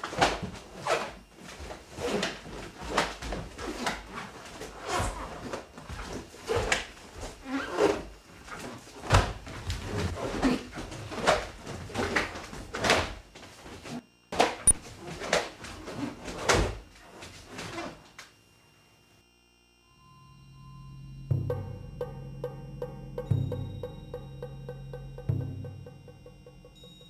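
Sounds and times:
bare feet thumping and sliding: 0.0 - 18.0.

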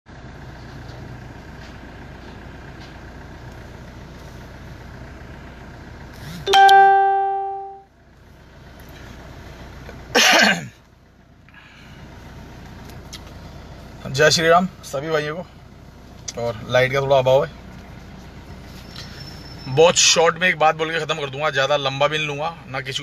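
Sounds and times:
vehicle interior hum: 0.1 - 23.0
electronic ding: 6.5 - 7.8.

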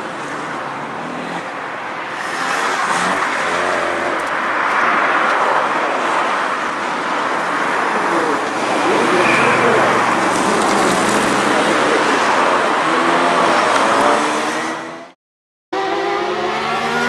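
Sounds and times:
car engine revving: 8.1 - 15.2, 15.8 - 17.0.

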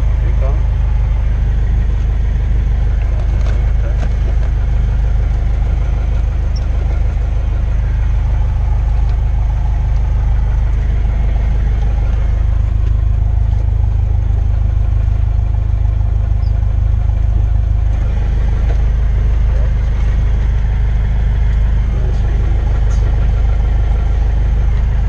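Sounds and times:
airplane engine and propeller running: 0.0 - 25.0.

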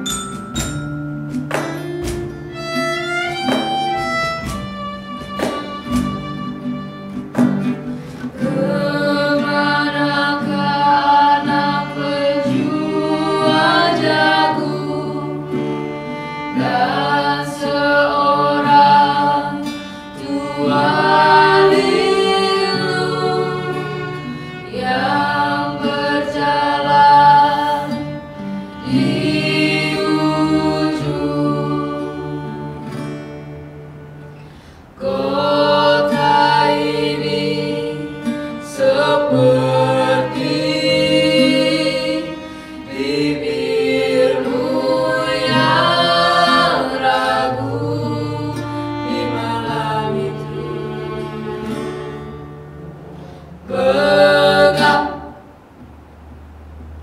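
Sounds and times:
violin: 0.0 - 55.4
acoustic guitar: 0.0 - 57.0
women singing: 8.2 - 33.1, 35.0 - 52.4, 53.6 - 55.5.

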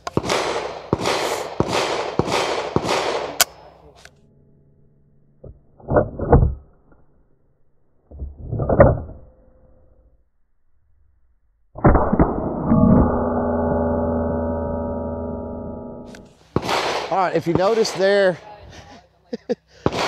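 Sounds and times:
ringing metal hit: 11.8 - 16.4.

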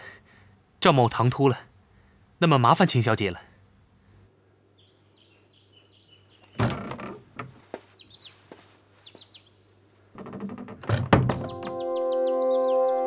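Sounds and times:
birds chirping: 4.3 - 10.0, 11.3 - 13.0
wooden door knocking open: 6.6 - 7.6, 10.2 - 11.7.

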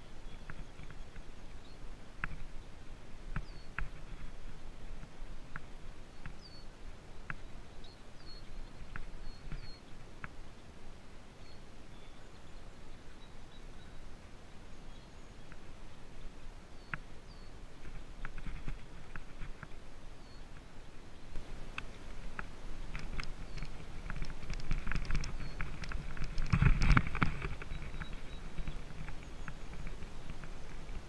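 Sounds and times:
bicycle rolling over grass: 21.4 - 31.0.

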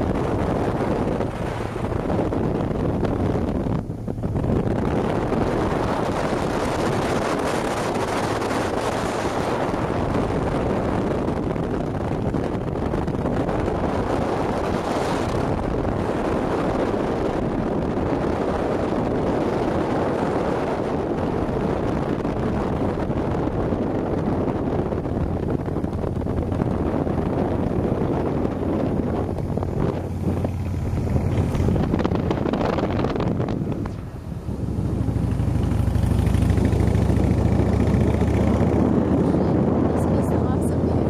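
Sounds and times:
motorbike engine humming: 0.0 - 41.0
wind rushing over microphone: 0.0 - 41.0.

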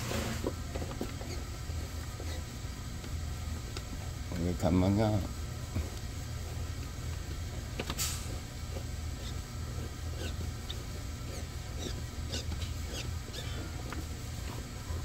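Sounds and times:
steady low hum: 0.0 - 15.0
metal pipe squeaking and ticking: 1.1 - 1.5, 9.1 - 9.4, 10.1 - 13.8.

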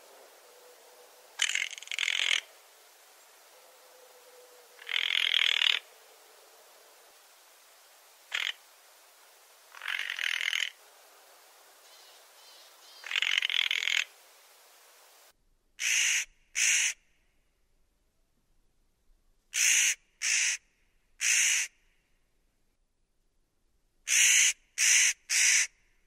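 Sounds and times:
hissy background: 0.0 - 15.4
bird harsh rasping calls: 1.4 - 2.5, 11.9 - 14.1, 15.8 - 17.0, 19.6 - 20.6, 21.2 - 21.7.

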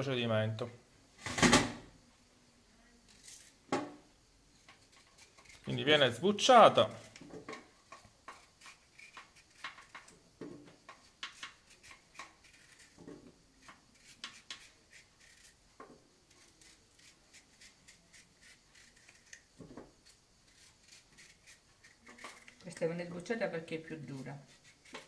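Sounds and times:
knife scraping squash skin: 3.1 - 3.6, 4.6 - 7.3, 7.9 - 10.2, 10.9 - 15.6, 16.3 - 22.9, 23.9 - 25.0.

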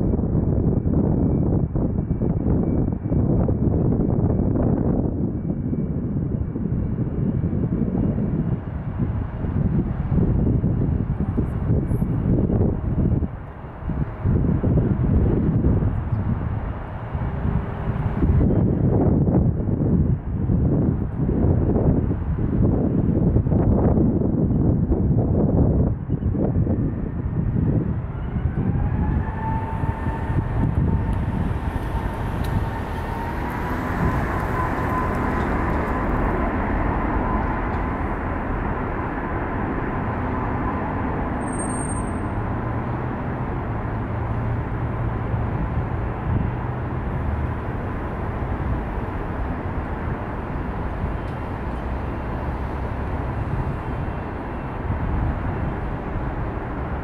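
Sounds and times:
heavy engine rumble: 0.0 - 57.0
jet engines whining: 28.4 - 41.4.

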